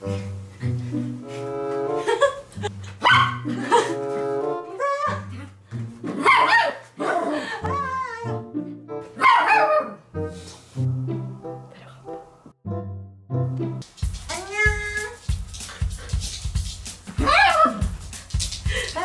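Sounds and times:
small dog barking: 0:03.0 - 0:03.5, 0:06.2 - 0:07.3, 0:09.2 - 0:10.0, 0:17.2 - 0:17.8.

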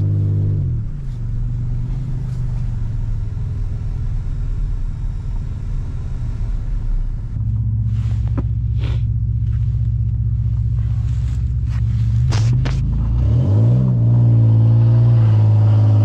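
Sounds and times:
pickup engine rumbling: 0:00.0 - 0:16.0.

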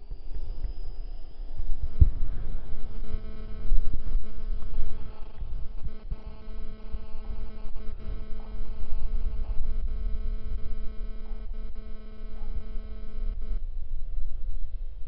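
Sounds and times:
low wind rumble: 0:00.0 - 0:11.0
drone propellers humming: 0:00.0 - 0:13.6.

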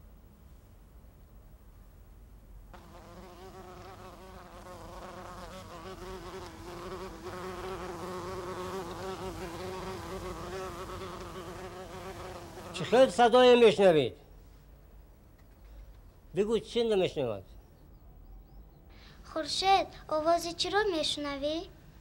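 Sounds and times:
bee buzzing: 0:02.7 - 0:13.2.

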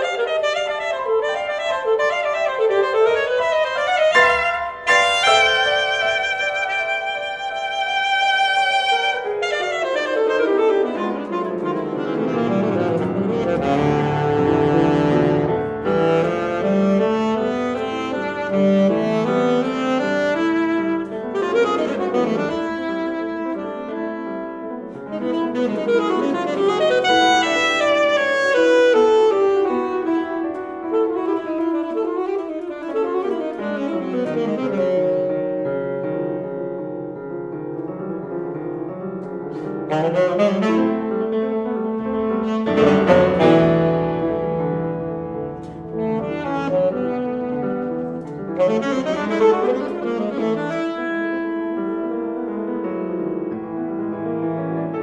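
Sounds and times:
piano chords: 0:00.0 - 0:55.0
saxophone: 0:00.0 - 0:55.0.

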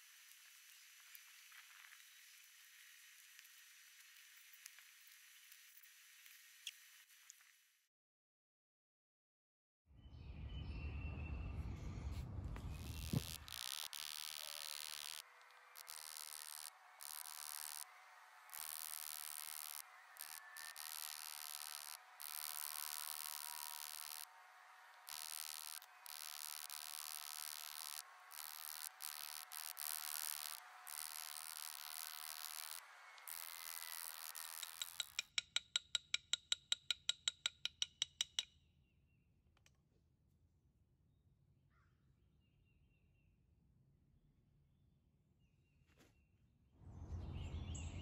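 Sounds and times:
insects chorus: 0:12.7 - 0:24.4, 0:25.0 - 0:35.2
hammer taps on metal: 0:34.6 - 0:38.5.

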